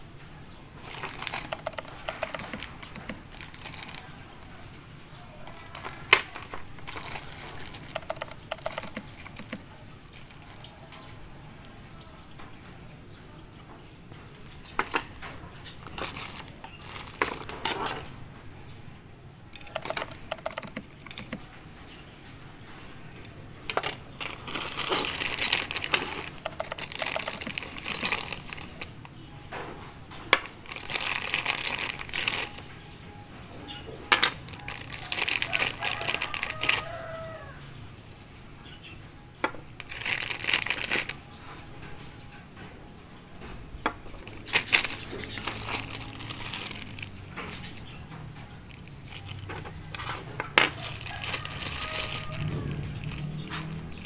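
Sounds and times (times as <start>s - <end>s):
small parts clicking: 0.8s - 4.2s, 5.5s - 11.2s, 15.8s - 18.1s, 19.5s - 21.6s, 22.4s - 29.2s, 30.3s - 32.8s, 34.1s - 37.1s, 39.4s - 41.2s, 44.2s - 54.0s
plastic bags crinkling: 0.8s - 4.7s, 5.4s - 11.2s, 14.3s - 18.2s, 19.5s - 21.6s, 23.1s - 29.4s, 30.3s - 33.0s, 33.7s - 37.6s, 39.4s - 41.9s, 44.1s - 54.0s.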